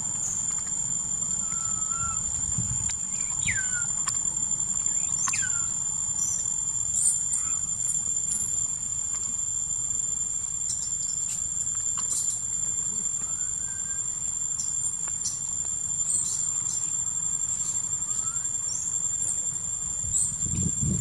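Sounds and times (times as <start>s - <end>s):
insects droning: 0.0s - 21.0s
brief rising whistles: 1.4s - 4.0s.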